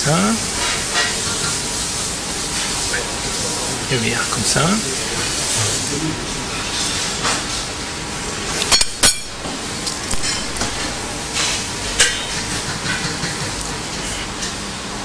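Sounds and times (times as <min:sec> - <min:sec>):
steady background hiss: 0:00.0 - 0:15.0
metallic clinks of kitchen utensils: 0:08.7 - 0:09.4.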